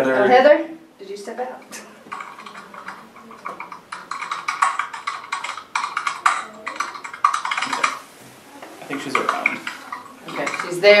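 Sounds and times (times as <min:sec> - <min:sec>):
small clicks and taps: 0:02.0 - 0:08.0.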